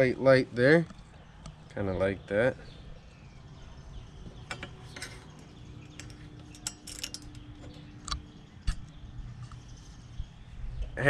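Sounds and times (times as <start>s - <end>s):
hands handling metal bracket: 4.5s - 7.9s.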